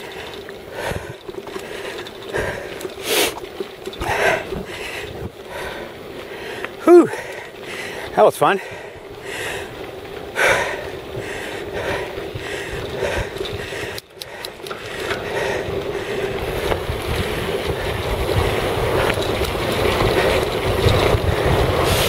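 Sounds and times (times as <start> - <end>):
bicycle tyres rolling on dirt: 0.0 - 22.0
wind rushing over microphone: 10.4 - 22.0.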